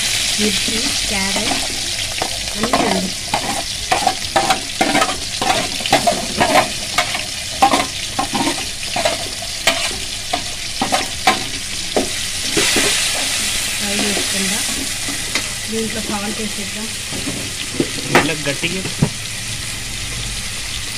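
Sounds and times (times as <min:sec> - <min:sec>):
vegetables sizzling in oil: 0:00.0 - 0:20.9
spatula scraping metal pan: 0:00.7 - 0:15.4.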